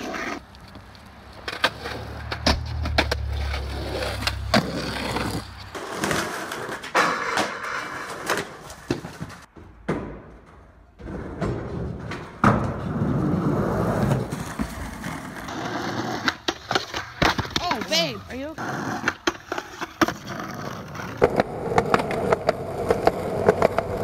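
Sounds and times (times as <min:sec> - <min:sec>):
skateboard clacking: 0:00.0 - 0:24.0
skateboard wheels rolling: 0:00.0 - 0:24.0
skateboard landing smack: 0:08.9 - 0:10.6.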